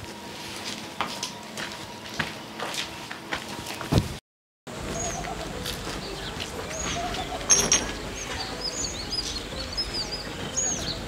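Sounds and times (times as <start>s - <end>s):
small birds chirping: 4.8s - 11.0s.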